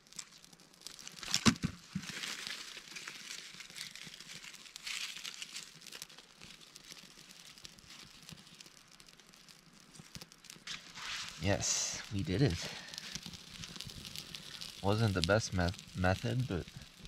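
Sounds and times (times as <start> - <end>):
kindling crackling in campfire: 0.0 - 17.0
hissy swell: 10.7 - 13.2.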